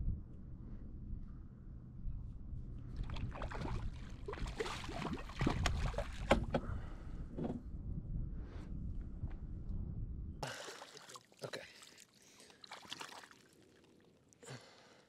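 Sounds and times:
fish splashing in water: 3.0s - 6.3s, 10.5s - 14.1s.

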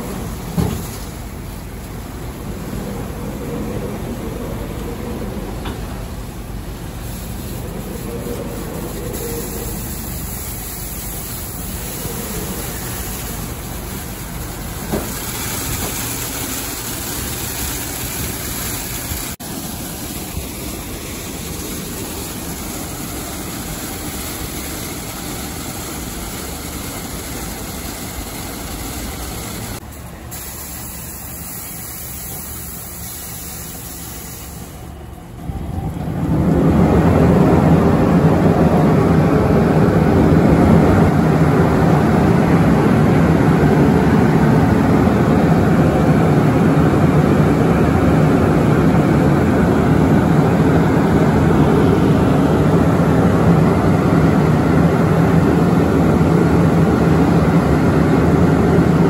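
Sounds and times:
car wash machine running: 0.0s - 59.0s.

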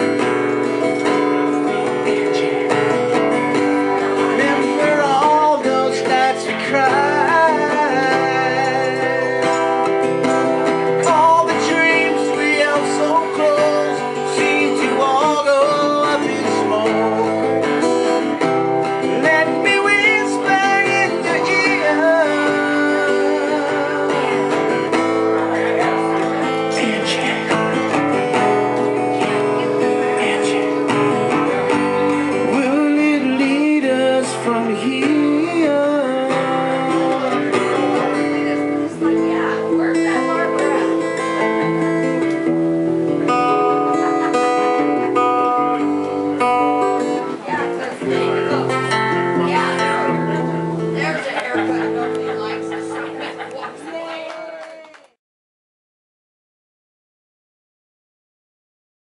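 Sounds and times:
man singing: 0.0s - 42.5s
strummed acoustic guitar: 0.0s - 54.3s.

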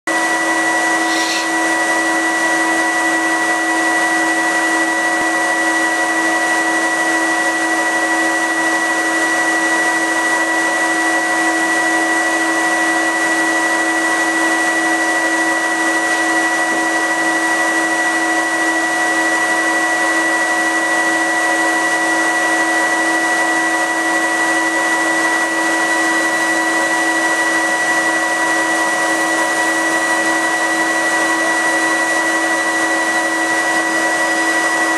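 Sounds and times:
loud blower rushing: 0.1s - 34.9s.

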